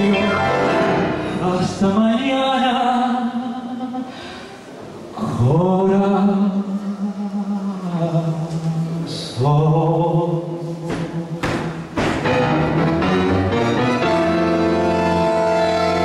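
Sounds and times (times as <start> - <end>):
tango band playing: 0.0 - 1.9, 11.5 - 16.0
piano: 0.0 - 3.8, 5.2 - 16.0
man singing with vibrato: 0.0 - 4.3, 5.1 - 11.9.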